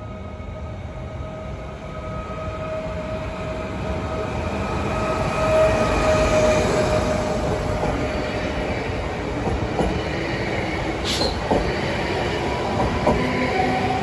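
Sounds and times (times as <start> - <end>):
electric train passing: 0.0 - 14.0.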